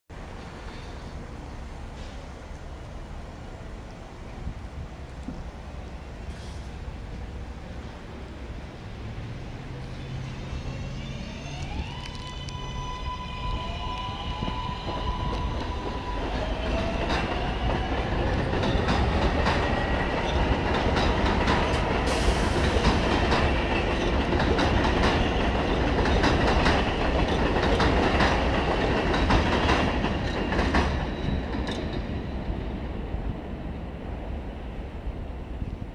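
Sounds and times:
wheels clicking over rail joints: 0:14.8 - 0:32.1.

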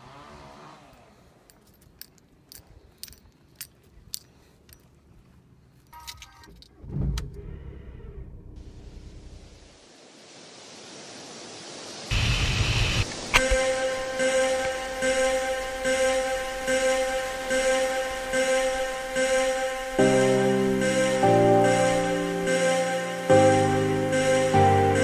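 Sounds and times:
car keys jangling: 0:01.4 - 0:05.1, 0:05.7 - 0:06.8
car engine cranking and starting: 0:06.0 - 0:09.6.

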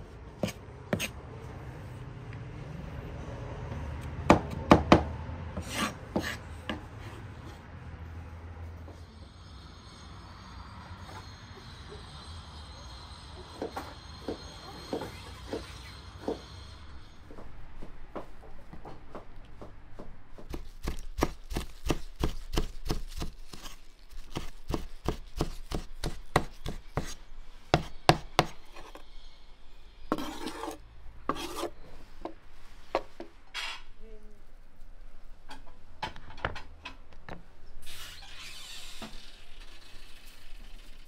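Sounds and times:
knife blade scraping board: 0:00.4 - 0:01.2, 0:05.6 - 0:07.2, 0:30.1 - 0:31.8
knife chopping on wooden board: 0:20.0 - 0:23.7, 0:24.3 - 0:28.6.

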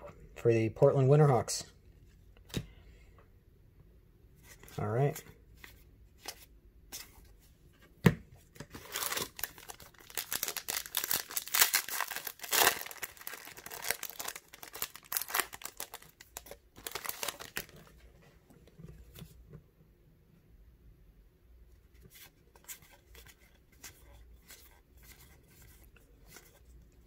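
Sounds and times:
foil wrapper tearing and crinkling: 0:08.8 - 0:17.7.

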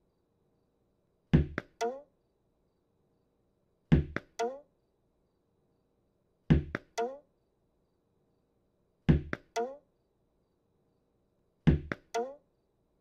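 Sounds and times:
cartoon ball bouncing off wall: 0:09.1 - 0:09.8.

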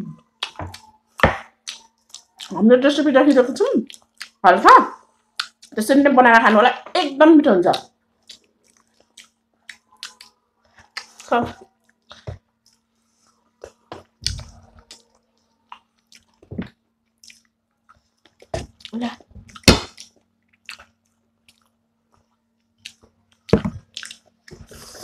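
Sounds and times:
chewing and biting: 0:00.4 - 0:02.6, 0:08.2 - 0:12.8, 0:13.6 - 0:16.5, 0:17.1 - 0:25.0.

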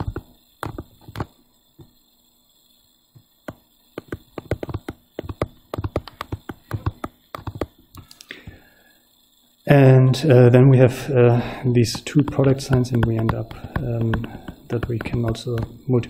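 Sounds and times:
stylus tapping on tablet screen: 0:00.0 - 0:01.3, 0:03.4 - 0:08.1, 0:11.9 - 0:15.8.

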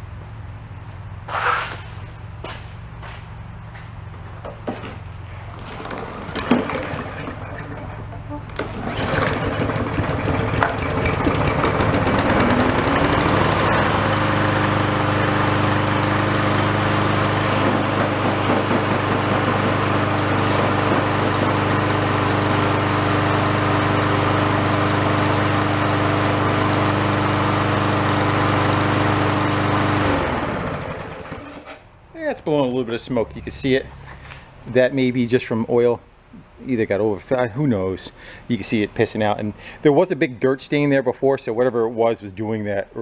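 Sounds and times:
lawn mower engine running: 0:04.1 - 0:31.9.

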